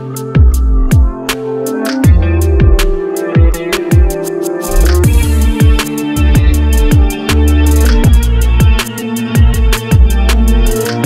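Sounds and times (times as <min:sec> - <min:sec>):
steady drum beat: 0:00.4 - 0:11.0
deep sliding bass notes: 0:02.1 - 0:03.0, 0:04.7 - 0:08.8, 0:09.4 - 0:11.0.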